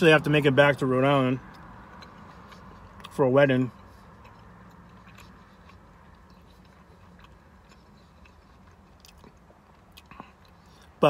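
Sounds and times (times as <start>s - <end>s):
low hum inside a car: 0.0s - 11.0s
person chewing: 0.5s - 11.0s.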